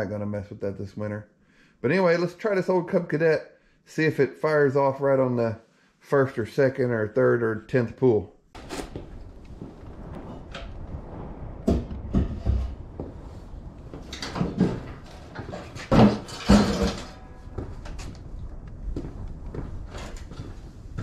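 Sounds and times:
snowblower clunking and knocking: 14.2s - 17.3s.

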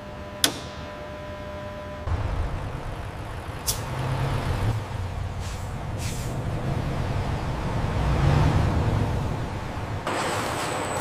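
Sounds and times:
truck engine rumbling: 2.0s - 11.0s
air brake hiss: 5.4s - 6.4s.

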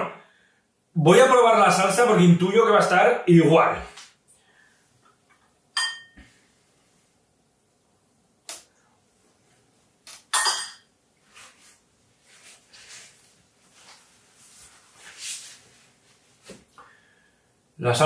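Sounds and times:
paper napkin rustling: 11.2s - 16.7s.

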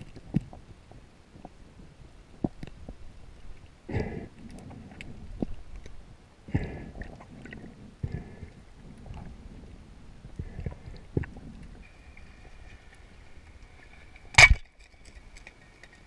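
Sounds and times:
underwater rumble of moving water: 0.0s - 15.6s
water gurgling: 0.0s - 16.0s.

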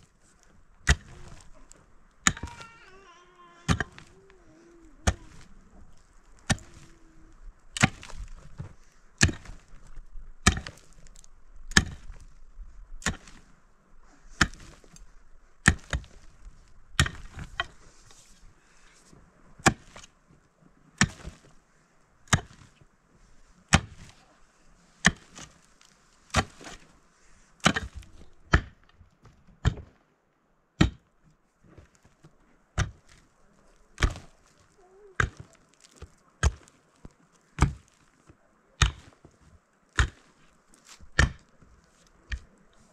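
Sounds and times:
pick striking hard soil: 0.8s - 1.6s, 2.2s - 2.8s, 3.6s - 4.2s, 6.3s - 6.9s, 7.8s - 11.1s, 11.7s - 12.3s, 13.0s - 13.5s, 14.4s - 15.0s, 15.6s - 16.3s, 17.0s - 17.8s, 21.0s - 21.5s, 22.3s - 22.8s, 23.7s - 24.1s, 25.0s - 26.9s, 27.6s - 28.9s, 32.8s - 33.2s, 34.0s - 34.6s, 35.2s - 38.2s, 38.8s - 41.6s, 42.3s - 42.6s.

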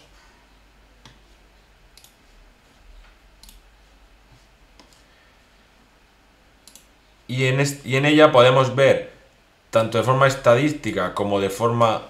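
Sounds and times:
room hum: 0.0s - 12.0s
faint computer mouse clicks: 1.9s - 2.2s, 3.4s - 3.6s, 4.8s - 5.1s, 6.6s - 6.9s.

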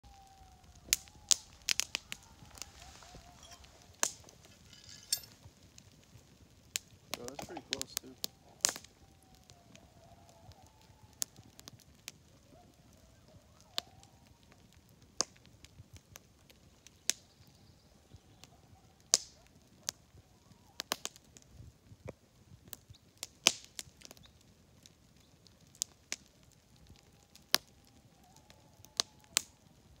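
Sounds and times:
campfire wood crackling: 0.0s - 30.0s
faint coyote yelps: 0.1s - 4.0s, 7.3s - 14.6s, 17.2s - 21.2s, 27.0s - 29.8s.

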